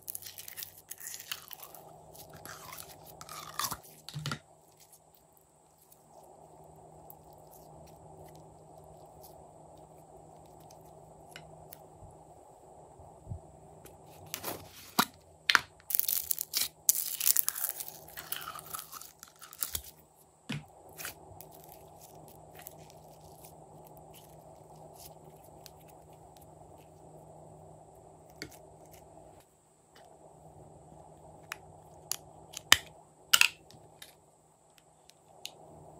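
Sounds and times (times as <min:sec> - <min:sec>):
slime crackling and popping: 0:15.8 - 0:19.9.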